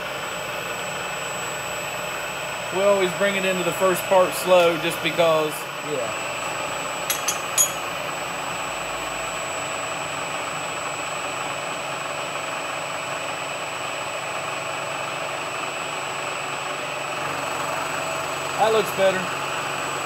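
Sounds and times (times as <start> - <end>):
milling machine cutting metal: 1.6 - 5.8, 6.9 - 8.0.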